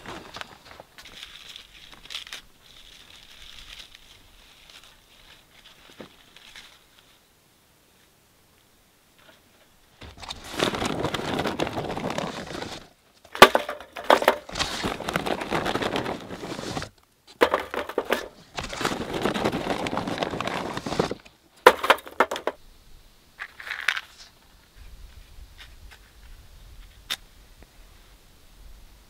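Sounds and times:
twigs and charcoal crunching: 0:00.0 - 0:07.2, 0:09.2 - 0:22.6.

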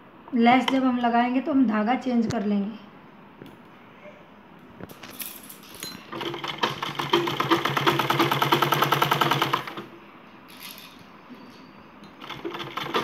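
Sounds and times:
sewing machine stitching: 0:06.1 - 0:09.9, 0:12.2 - 0:13.0.

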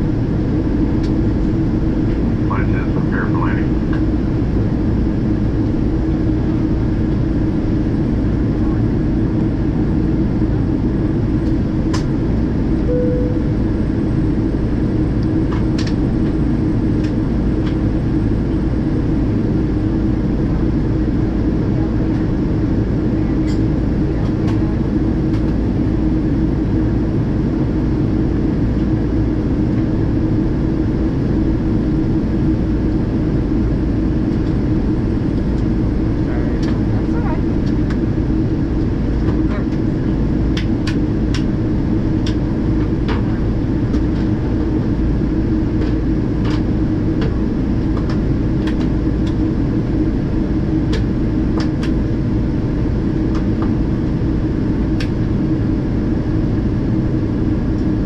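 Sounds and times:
aircraft engines droning: 0:00.0 - 0:58.0
steady low hum: 0:00.0 - 0:58.0
short faint cabin tone: 0:12.9 - 0:14.0.

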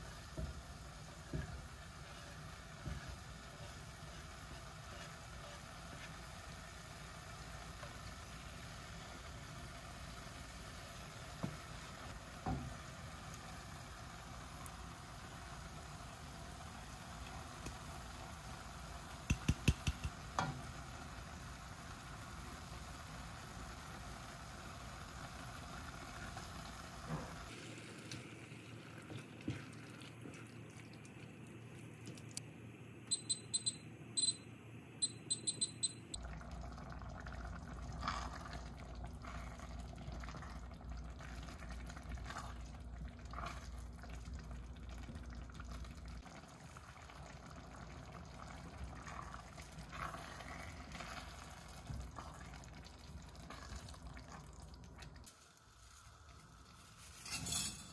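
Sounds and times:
short high electronic beeps: 0:33.1 - 0:36.2.

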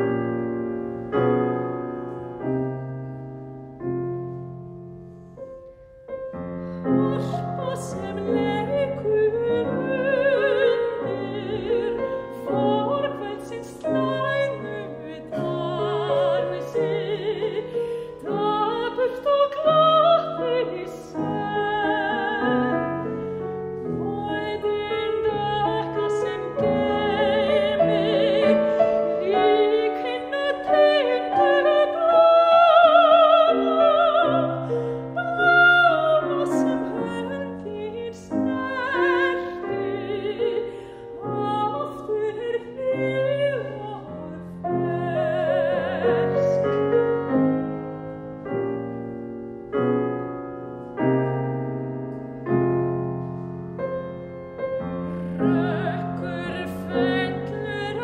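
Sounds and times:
grand piano accompaniment: 0:00.0 - 0:58.0
soprano singing with vibrato: 0:06.9 - 0:47.5, 0:55.1 - 0:58.0.

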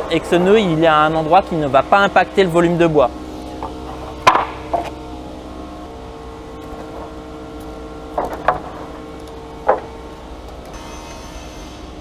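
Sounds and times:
steady machine hum: 0:00.0 - 0:12.0
wooden planks knocking: 0:03.6 - 0:04.9.

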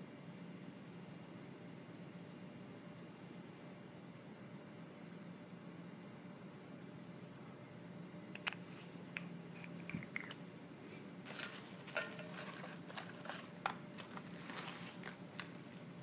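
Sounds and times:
faint steady hum: 0:00.0 - 0:16.0
packaging rustling: 0:11.3 - 0:15.9.

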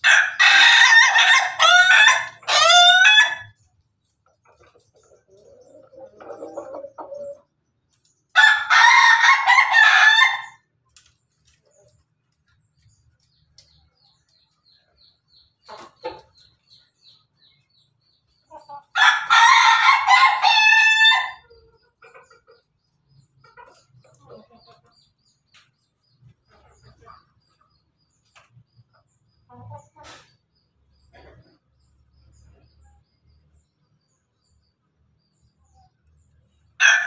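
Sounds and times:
rooster crowing: 0:08.4 - 0:10.6, 0:19.0 - 0:21.4, 0:36.8 - 0:37.0.

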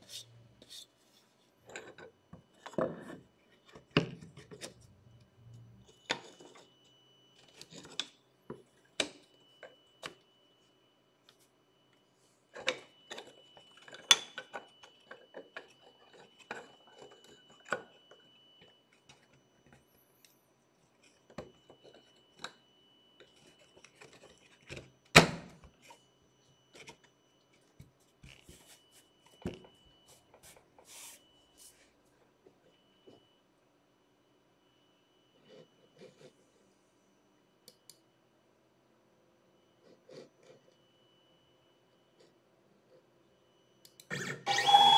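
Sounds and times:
faint high whine: 0:00.0 - 0:44.9.

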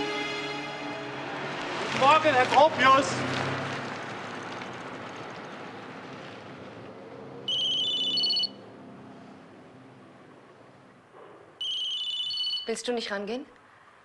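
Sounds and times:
background noise: 0:00.0 - 0:14.0
electronic telephone ringing: 0:07.5 - 0:08.6, 0:11.6 - 0:12.7.

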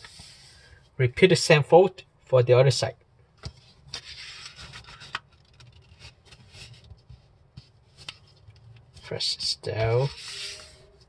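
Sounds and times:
paper rustling and rubbing: 0:03.6 - 0:11.0
paper crinkling clicks: 0:03.9 - 0:07.0.

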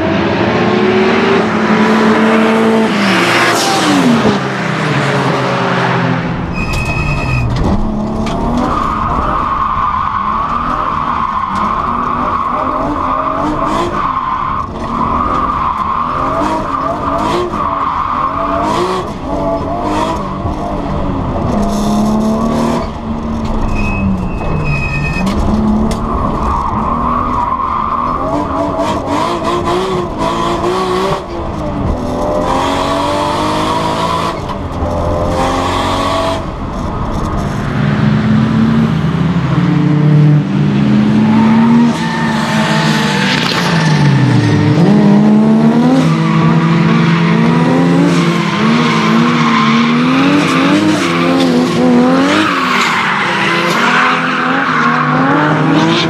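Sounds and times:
car engine revving hard: 0:37.9 - 0:52.5.

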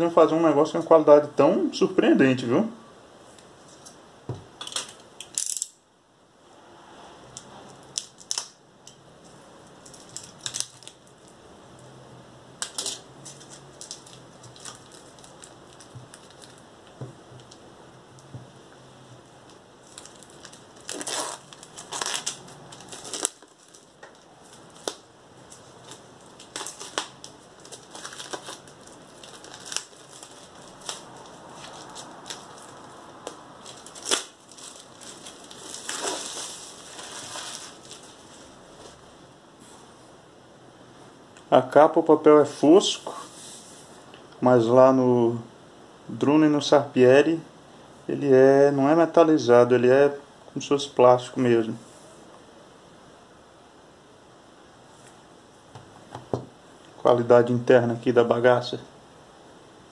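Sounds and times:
plastic shrink-wrap crinkling: 0:07.7 - 0:11.4, 0:12.6 - 0:18.4, 0:19.2 - 0:39.0.

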